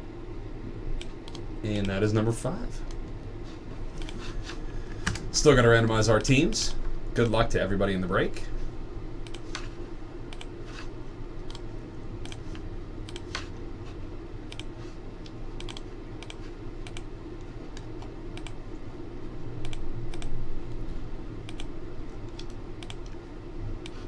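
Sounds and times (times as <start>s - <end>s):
steady low hum: 0.0s - 24.0s
mouse and keyboard clicks: 15.6s - 17.0s.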